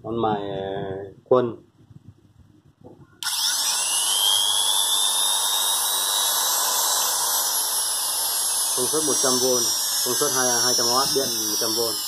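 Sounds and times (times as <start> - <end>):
die grinder whining: 3.2 - 12.0.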